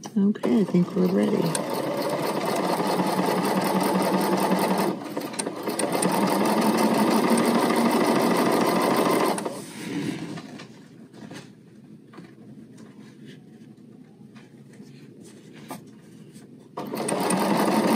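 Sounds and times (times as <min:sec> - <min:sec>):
sewing machine stitching: 0:00.5 - 0:09.6, 0:16.8 - 0:17.9.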